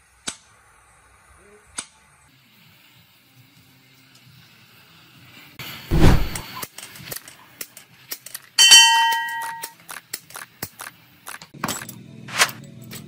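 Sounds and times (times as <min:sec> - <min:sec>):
heavy low metal thump: 0:05.9 - 0:06.4
ringing metal clang: 0:08.6 - 0:09.7.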